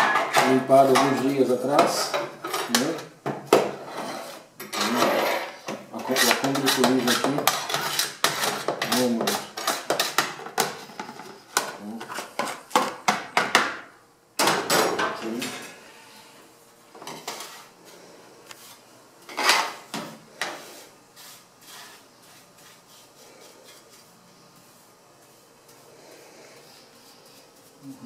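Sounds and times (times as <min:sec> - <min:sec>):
faint brushing and scratching: 0:17.2 - 0:19.6, 0:20.5 - 0:28.0.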